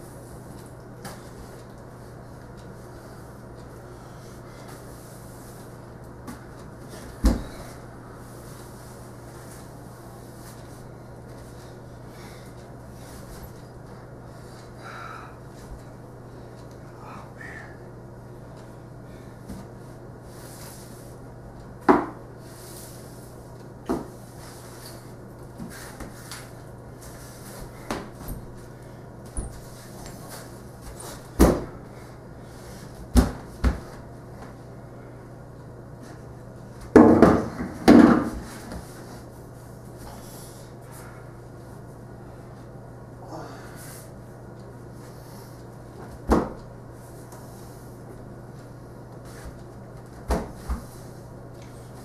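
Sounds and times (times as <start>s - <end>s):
knocks and thumps on hardwood floor: 36.9s - 38.4s.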